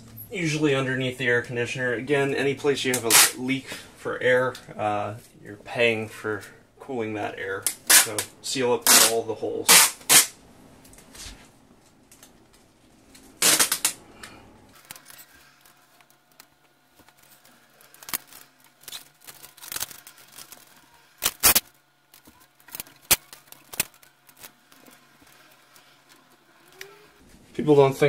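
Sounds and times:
tape pulled off roll rasping: 2.9 - 3.4, 7.6 - 10.4, 13.4 - 14.0, 14.7 - 27.2
tape clicks and snaps: 7.6 - 8.3, 8.9 - 11.1, 13.1 - 15.1, 17.9 - 24.9.

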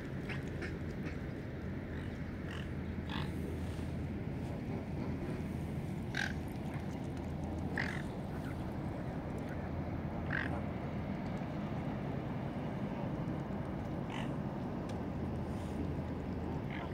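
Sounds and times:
low background rumble: 0.0 - 16.9
waterfowl quacking: 6.1 - 6.4, 7.8 - 8.0, 10.3 - 10.6.

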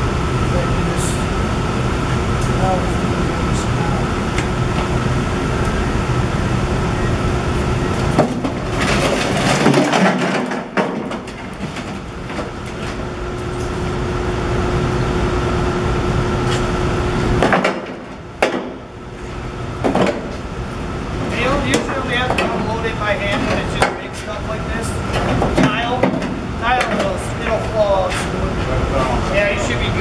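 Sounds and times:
steady mechanical hum: 0.0 - 30.0
concrete chunks clattering out: 8.1 - 13.0.

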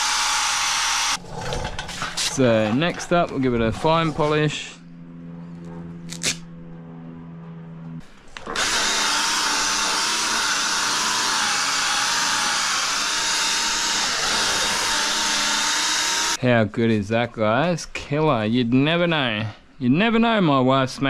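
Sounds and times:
cordless polisher motor whine: 0.0 - 1.2, 8.4 - 16.4.

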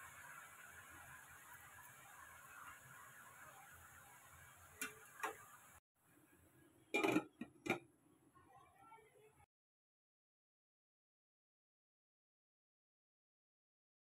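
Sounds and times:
metal lid clattering: 7.0 - 7.8.

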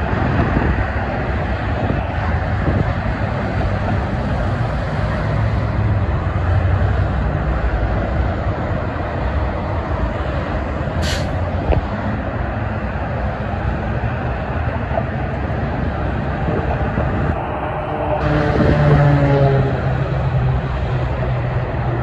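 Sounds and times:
freeway traffic: 0.0 - 22.0
sharp hiss: 11.0 - 11.4.

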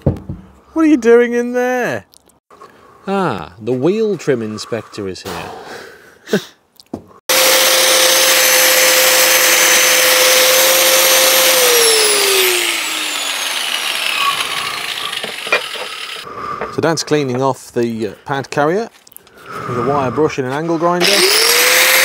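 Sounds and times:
angle grinder wire brush scouring: 7.5 - 16.3.

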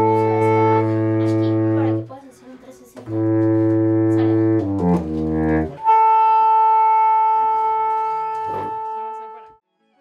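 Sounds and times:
baritone saxophone low notes: 0.0 - 2.1, 3.0 - 9.6
saxophone quartet playing chords: 0.0 - 2.1, 3.0 - 9.6.

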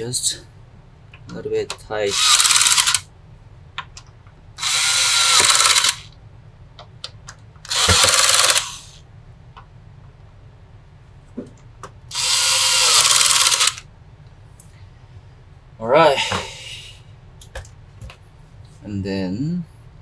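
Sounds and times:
electric screwdriver driving screws: 2.1 - 3.0, 4.6 - 6.1, 7.7 - 8.9, 12.1 - 13.8.

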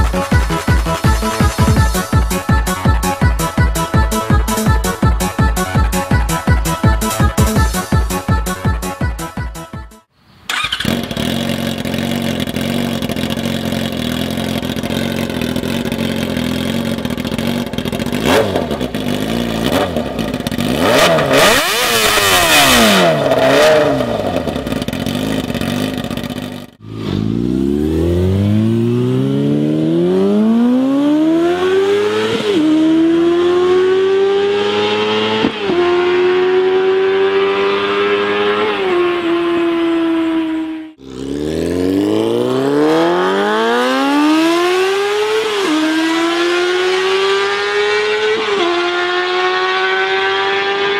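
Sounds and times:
motorcycle engine revving: 10.5 - 50.9.

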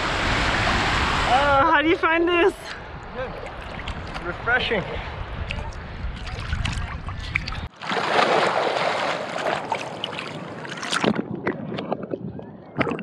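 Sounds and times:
sea water splashing against camera: 5.4 - 13.0.

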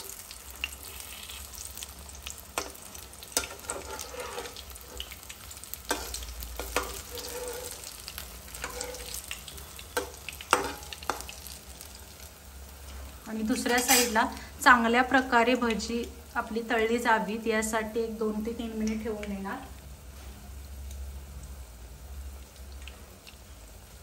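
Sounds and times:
potato slices sizzling in oil: 0.0 - 24.0
steel spatula scraping and clicking: 3.4 - 5.1, 5.9 - 9.4, 13.6 - 14.2.

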